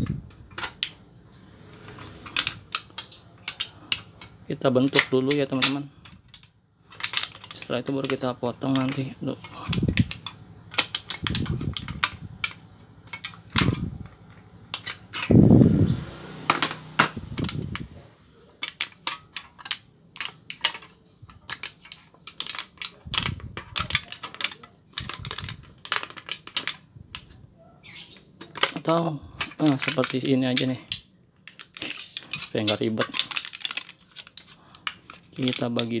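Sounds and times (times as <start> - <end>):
copper foil crinkling: 31.5 - 36.0.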